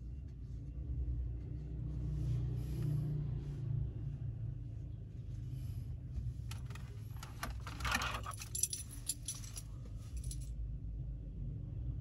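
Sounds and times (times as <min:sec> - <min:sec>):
car cabin rumble: 0:06.0 - 0:10.4
small metal objects jingling: 0:07.9 - 0:10.5.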